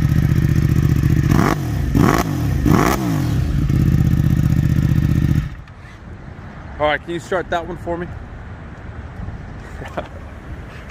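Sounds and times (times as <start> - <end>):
motorcycle engine idling and revving: 0.0 - 6.2.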